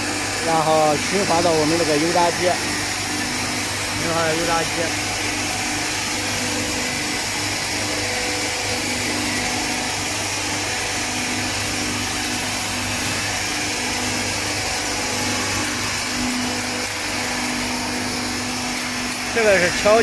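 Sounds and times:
frying machine whirring with hum: 0.0 - 20.0.

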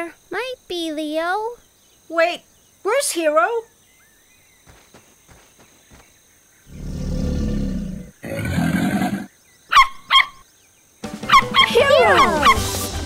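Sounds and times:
cartoon crocodile roaring: 6.7 - 9.3.

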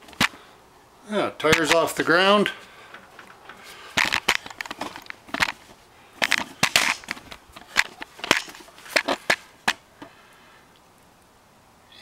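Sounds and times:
camera handling scrapes and knocks: 2.9 - 10.1.

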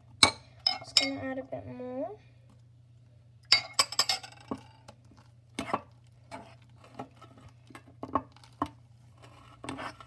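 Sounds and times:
spoon stirring slime in bowl: 4.8 - 10.0.

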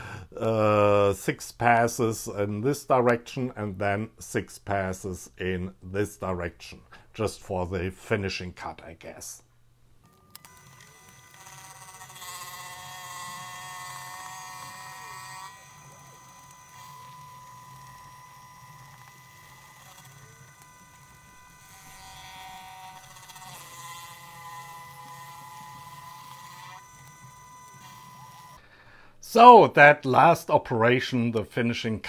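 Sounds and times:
milling machine high buzzing drone: 10.4 - 28.6.

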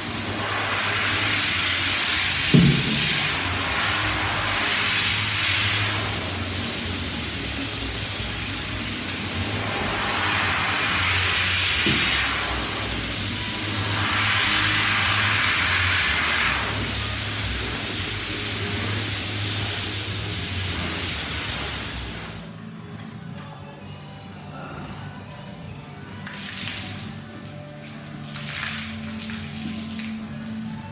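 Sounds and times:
water splashing on metal panel: 0.0 - 22.3
steady low hum: 0.0 - 23.0.

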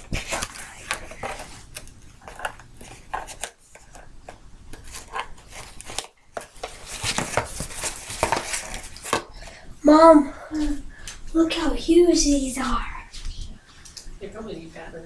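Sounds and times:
cardboard box being opened: 4.8 - 9.2.

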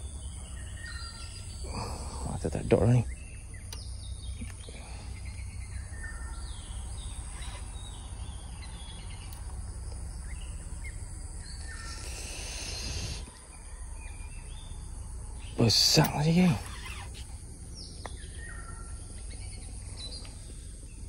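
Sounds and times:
birds chirping: 0.0 - 21.0
high insect drone: 0.0 - 21.0
loud hiss: 11.8 - 13.4.

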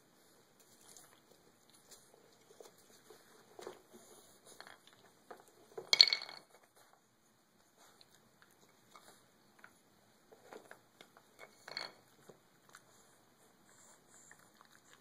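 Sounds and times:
puppy gnawing chew: 13.8 - 15.0.

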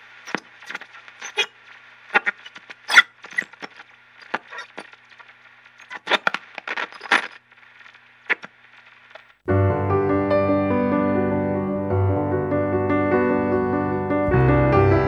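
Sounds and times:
sharp crackles and clicks: 0.0 - 9.4
faint steady hiss: 0.0 - 10.8.

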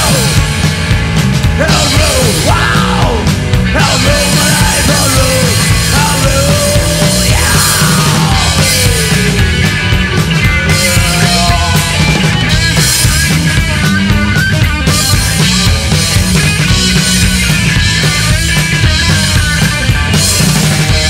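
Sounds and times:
rock band playing live: 0.0 - 21.0
person singing: 1.6 - 9.6, 10.7 - 12.3.

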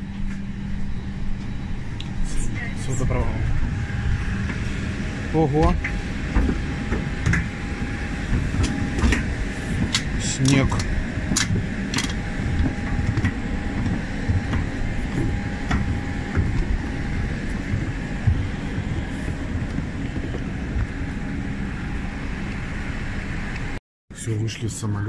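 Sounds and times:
aircraft cabin rumble: 0.0 - 24.9
faint steady whine: 0.0 - 25.0.

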